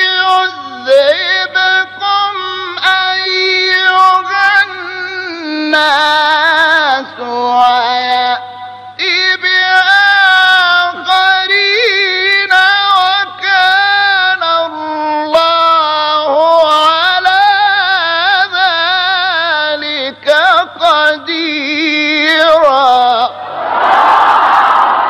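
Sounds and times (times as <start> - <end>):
person reciting in melodic chant: 0.0 - 23.4.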